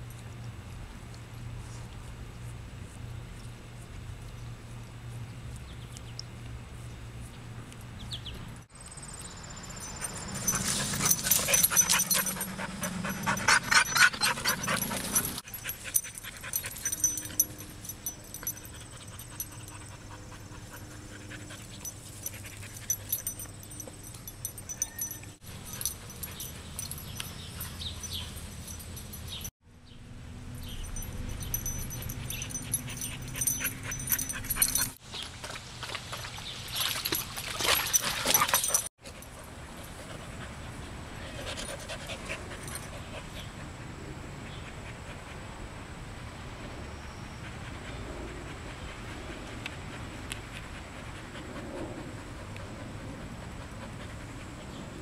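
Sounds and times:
dog panting: 10.0 - 23.8, 31.5 - 35.0, 37.9 - 45.5, 47.4 - 55.0.

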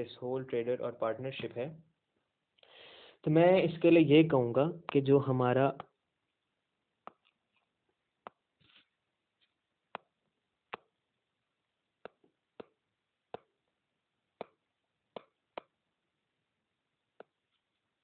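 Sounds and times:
stylus tapping on tablet screen: 5.7 - 6.4, 7.0 - 11.0, 12.0 - 13.7, 14.3 - 15.8, 17.1 - 17.7.

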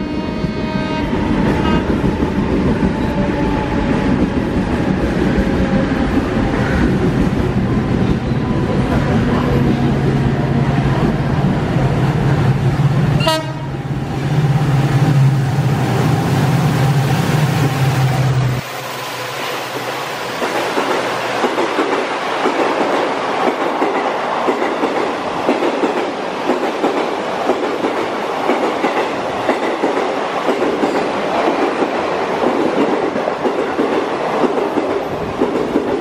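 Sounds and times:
train horn: 0.0 - 2.2, 13.2 - 13.8.

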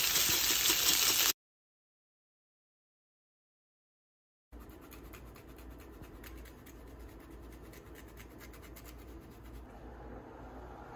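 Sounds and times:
vegetables sizzling in a frying pan: 0.0 - 1.4.

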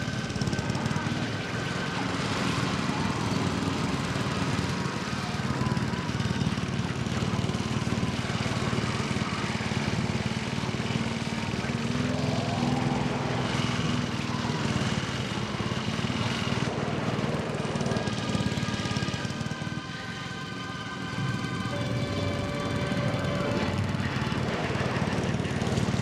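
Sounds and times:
lawnmower engine running: 0.0 - 26.0
people crying out: 11.0 - 16.0, 17.7 - 26.0.

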